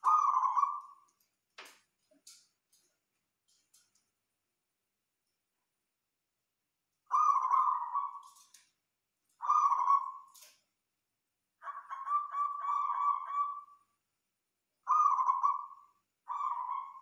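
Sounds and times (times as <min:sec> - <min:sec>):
dove cooing: 0:00.0 - 0:01.0, 0:07.1 - 0:08.5, 0:09.4 - 0:10.4, 0:11.6 - 0:13.8, 0:14.9 - 0:17.0.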